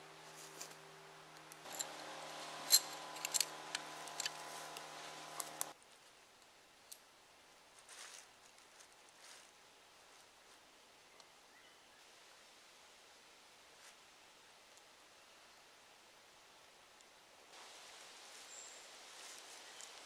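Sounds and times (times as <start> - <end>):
multi-tone hum: 0.0 - 5.8.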